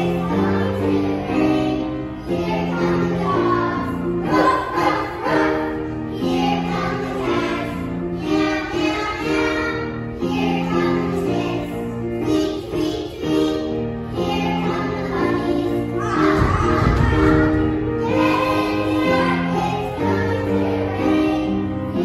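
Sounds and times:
children singing in unison: 0.0s - 22.0s.

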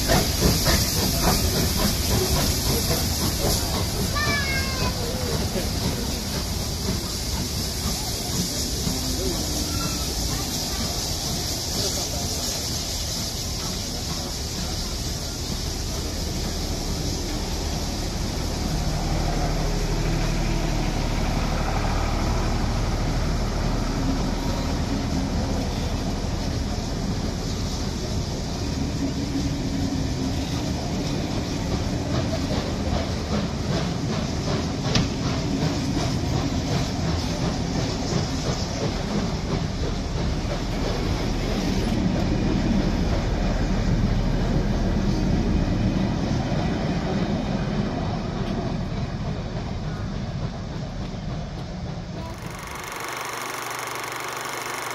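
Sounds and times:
train carriages rumbling: 0.0s - 52.8s
wheels clicking over rail joints: 48.4s - 54.9s.

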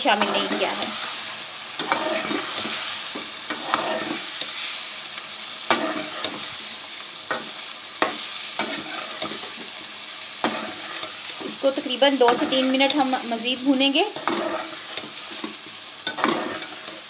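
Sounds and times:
masala sizzling in a pan: 0.0s - 17.0s
spoon scraping and knocking pan: 1.8s - 4.6s, 5.7s - 6.6s, 7.2s - 9.8s, 10.4s - 13.4s, 14.1s - 17.0s.

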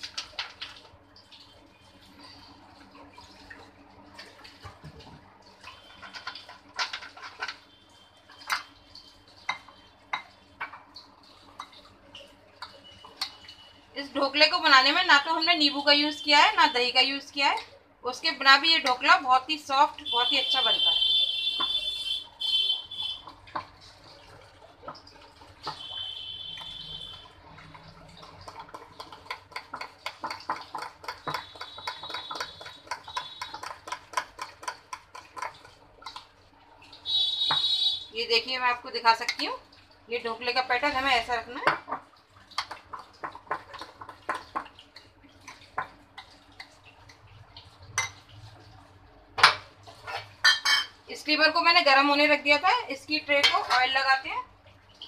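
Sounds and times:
spoon stirring thick batter: 4.1s - 13.6s, 20.3s - 37.9s, 40.8s - 48.9s
batter slapping in glass bowl: 27.6s - 36.4s, 42.6s - 46.0s
spoon clinking against glass bowl: 50.1s - 50.9s.

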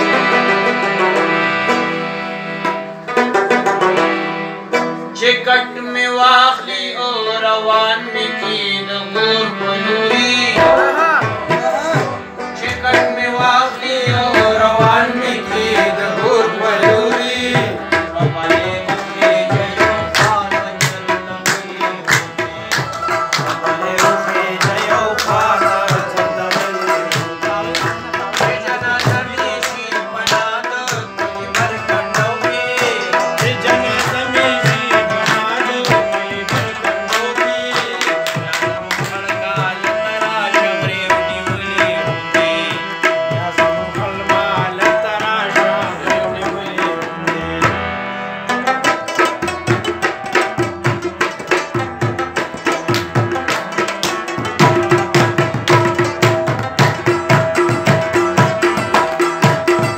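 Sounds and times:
tabla drums fast rhythm: 10.2s - 59.9s.

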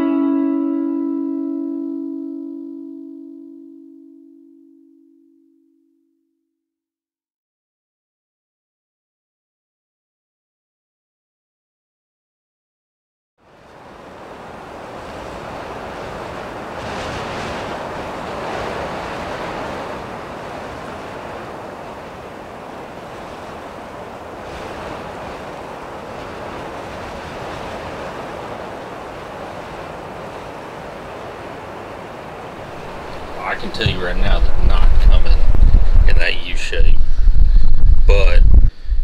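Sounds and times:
gusty wind on microphone: 13.5s - 39.0s.

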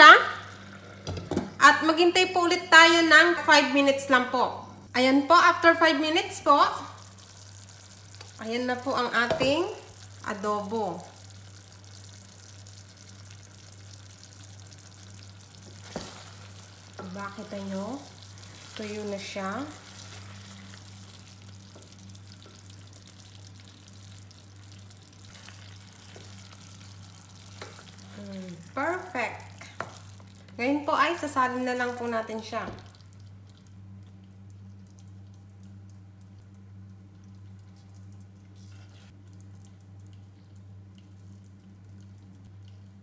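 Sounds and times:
steady low hum: 0.0s - 43.0s
food sizzling in a pot: 6.4s - 32.2s.

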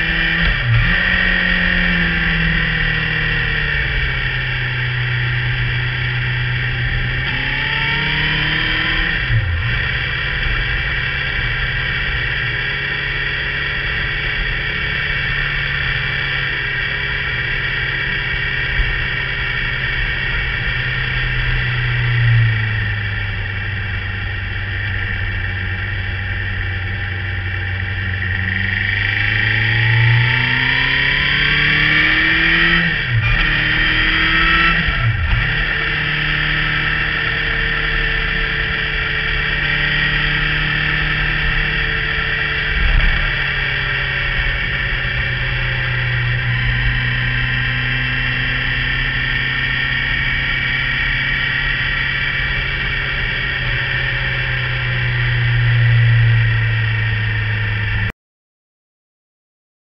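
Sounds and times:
motorcycle engine: 0.0s - 58.1s.

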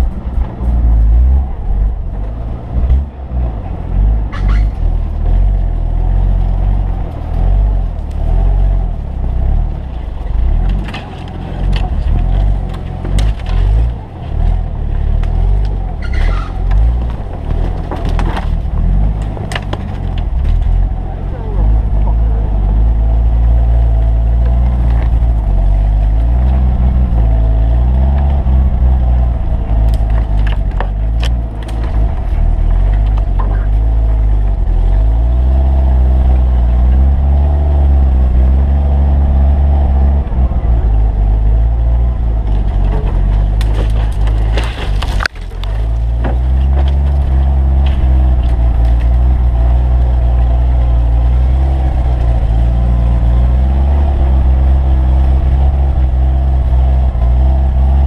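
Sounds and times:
off-road vehicle engine revving: 0.0s - 58.0s
branches snapping and scraping: 10.3s - 21.0s, 24.0s - 35.1s, 42.4s - 53.7s.

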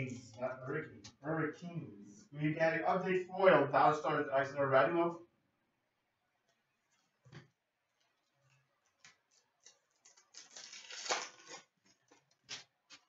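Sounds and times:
foil wrapper crinkling and tearing: 9.0s - 13.0s.

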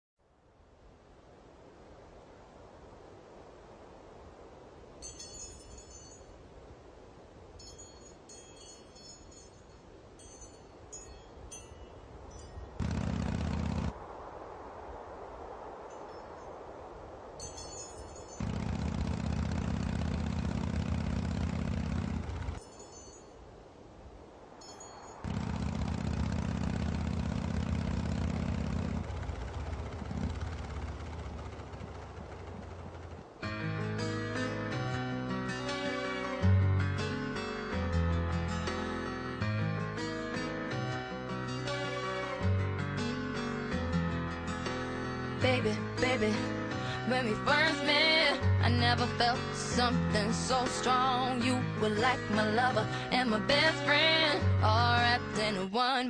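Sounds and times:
faint wind hiss: 0.2s - 56.0s
wind chimes tinkling: 5.0s - 6.5s, 7.5s - 12.8s, 17.4s - 18.4s, 22.6s - 23.6s, 24.5s - 25.3s
motorcycle engine running: 12.8s - 14.0s, 18.4s - 22.6s, 25.3s - 33.4s.

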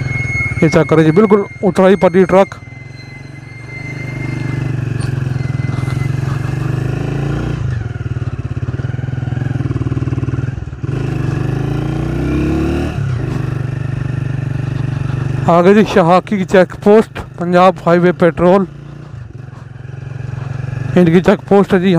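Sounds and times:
vehicle engine under load: 0.0s - 21.9s.

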